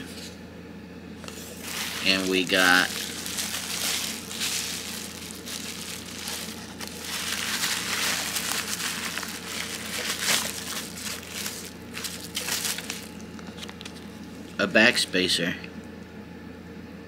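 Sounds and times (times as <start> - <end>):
bubble wrap crinkling: 1.2 - 14.6.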